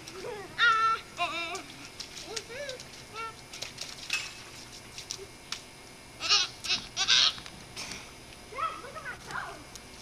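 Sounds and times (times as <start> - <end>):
child squealing: 6.2 - 7.4.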